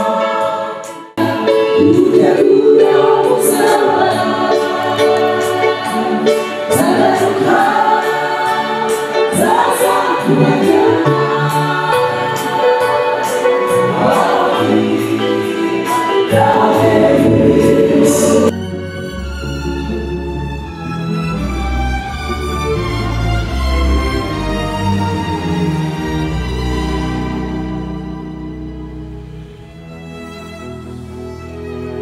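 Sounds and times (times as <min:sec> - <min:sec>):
gospel choir singing: 0:00.0 - 0:18.7
slow violin music: 0:14.9 - 0:32.0.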